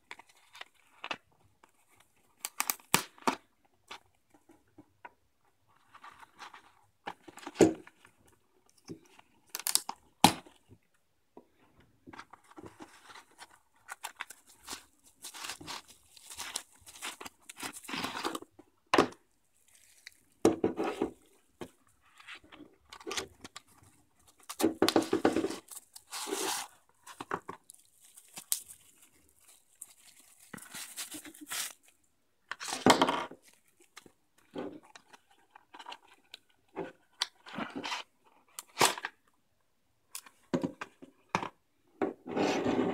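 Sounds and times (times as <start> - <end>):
paper wrapping crinkling and tearing: 12.6 - 18.4, 19.5 - 20.4, 22.2 - 32.0.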